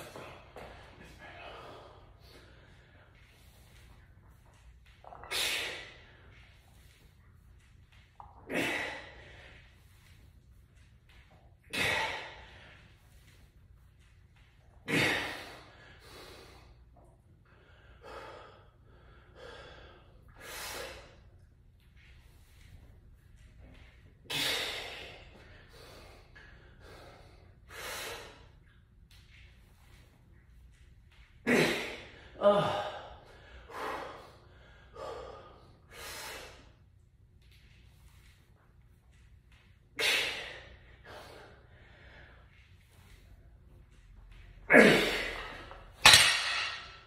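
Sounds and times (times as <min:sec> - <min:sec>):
man breathing hard: 0:00.0 - 0:04.6, 0:14.8 - 0:21.4, 0:24.2 - 0:28.6, 0:31.5 - 0:36.8, 0:39.9 - 0:43.6
forceful exhalations: 0:11.6 - 0:13.4.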